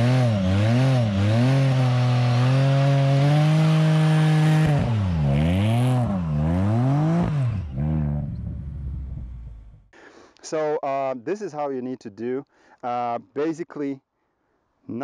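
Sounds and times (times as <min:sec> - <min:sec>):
engine revving at high revs: 0:00.0 - 0:09.4.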